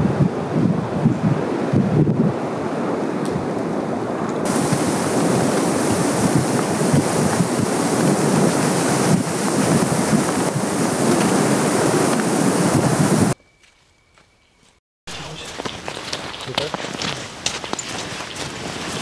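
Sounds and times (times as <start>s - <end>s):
wind through branches: 0.0s - 19.0s
bright hiss: 4.5s - 13.4s.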